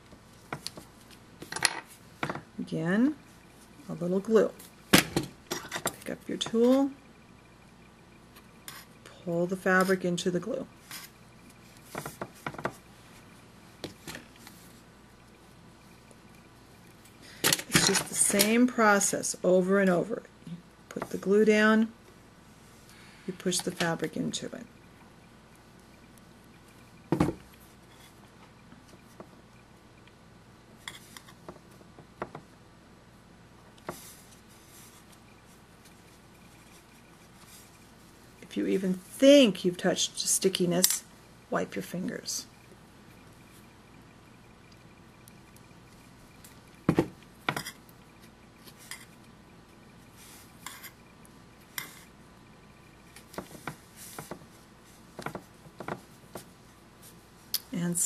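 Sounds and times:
fabric rustle: 33.9 - 39.1.

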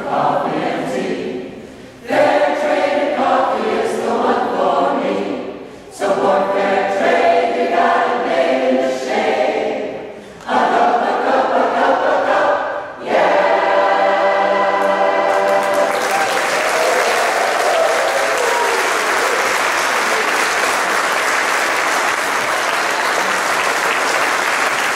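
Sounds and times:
mixed choir singing: 0.0 - 24.9
audience applause: 15.3 - 24.9.

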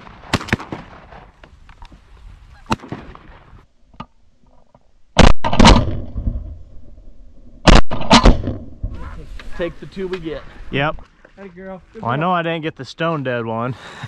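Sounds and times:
shotgun blasts: 0.0 - 1.3, 2.7 - 3.5, 5.2 - 6.2, 7.6 - 9.0.

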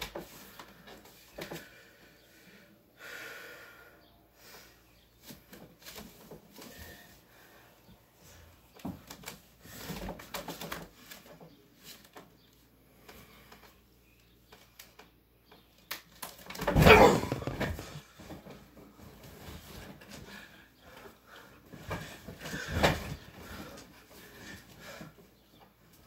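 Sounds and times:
bedding rustling: 16.6 - 26.0.

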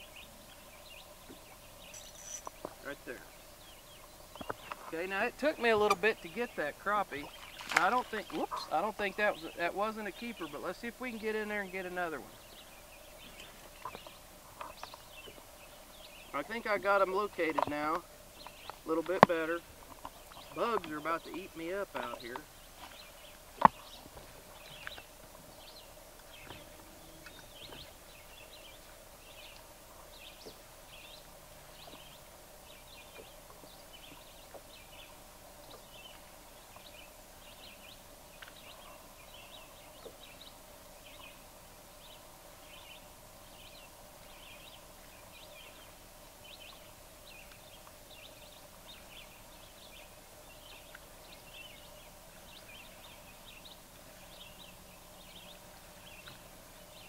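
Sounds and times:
faint steady hum: 0.0 - 57.0
small animal chirping: 1.9 - 2.6.

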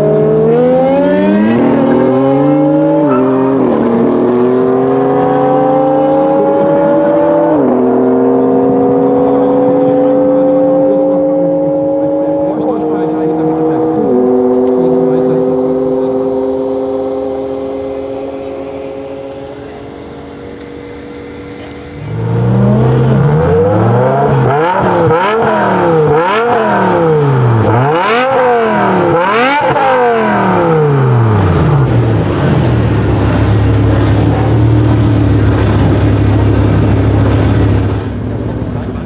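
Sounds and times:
car engine revving: 0.0 - 39.0
distant cars on drag strip: 0.0 - 39.0
car engine idling: 11.8 - 39.0.

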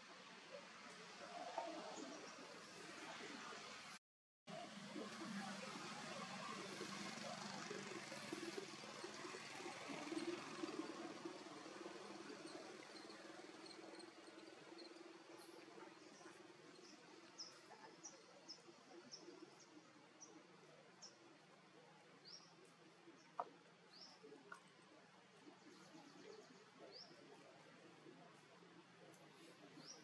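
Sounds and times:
small birds chirping: 5.4 - 28.5.

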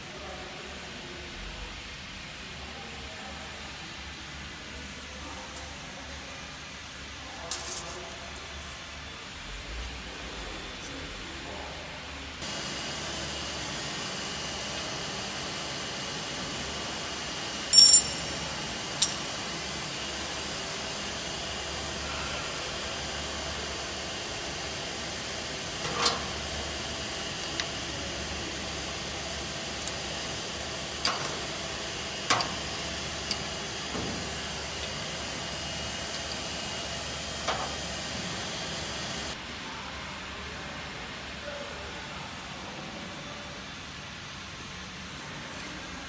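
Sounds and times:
workshop noise hiss: 0.0 - 46.0
pry bar clinking on metal: 17.7 - 18.3.

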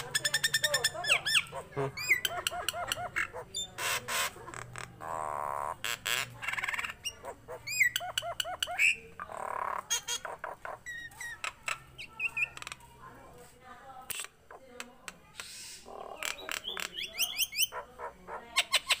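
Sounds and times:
myna bird calling: 0.0 - 12.8, 14.1 - 19.0.

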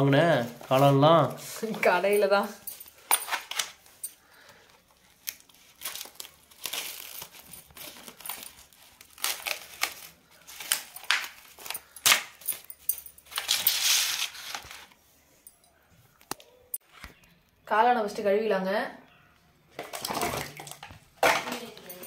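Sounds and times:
plastic film crinkling and tearing: 4.7 - 12.5.

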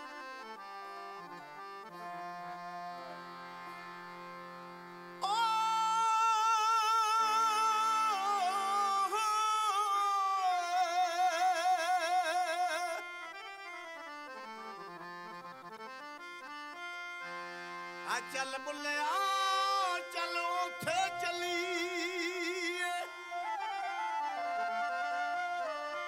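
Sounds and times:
instrumental accompaniment: 0.0 - 26.0
man singing high held note: 5.2 - 13.1, 18.1 - 23.5.

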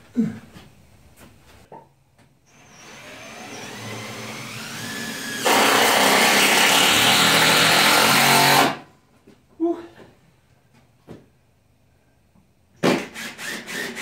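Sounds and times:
power drill motor running: 2.5 - 8.8.

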